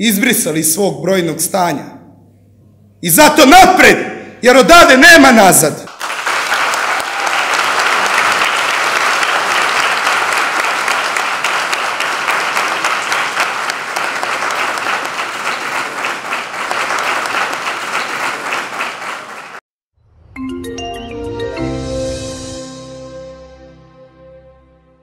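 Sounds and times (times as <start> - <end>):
audience applauding: 5.9 - 19.6.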